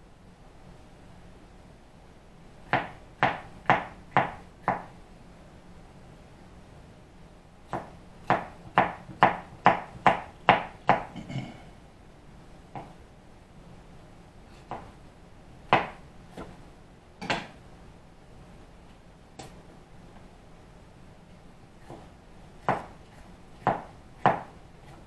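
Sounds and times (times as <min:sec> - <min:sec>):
knife chopping on cutting board: 0:02.7 - 0:04.9, 0:07.7 - 0:11.1, 0:15.7 - 0:16.6, 0:21.8 - 0:25.0.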